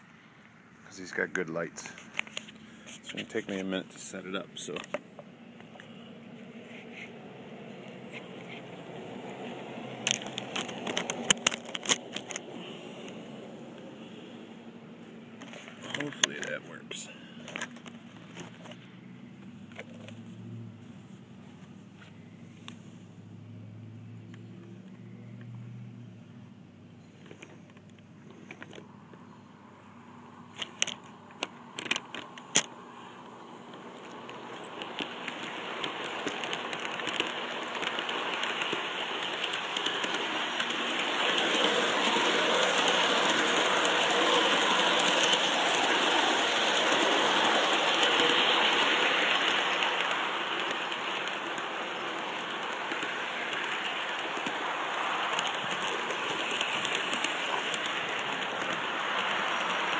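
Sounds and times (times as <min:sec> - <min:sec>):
model train wheels rattling: 0:10.0 - 0:13.2, 0:30.6 - 0:59.9.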